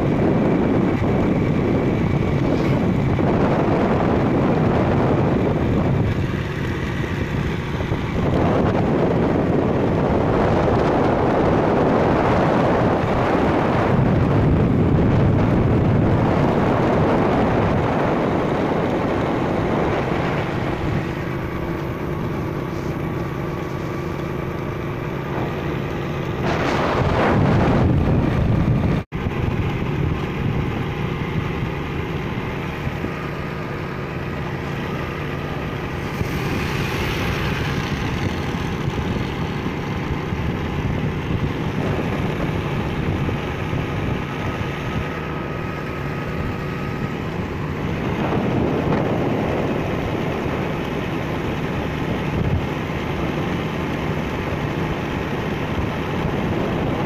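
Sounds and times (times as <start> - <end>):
loud rushing noise: 0.0 - 31.5, 32.4 - 50.2
motorcycle engine running: 0.0 - 57.0
wind on microphone: 0.0 - 57.0.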